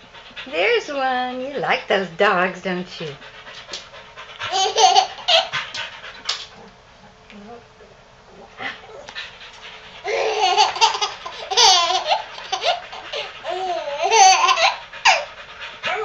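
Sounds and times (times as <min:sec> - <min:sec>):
baby giggling: 0:04.5 - 0:05.5, 0:10.0 - 0:15.2.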